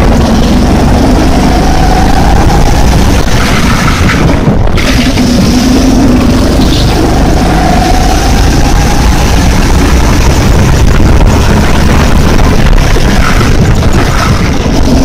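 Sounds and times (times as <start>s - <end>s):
go-kart engine accelerating: 0.0s - 15.0s
heavy constant rumble: 0.0s - 15.0s.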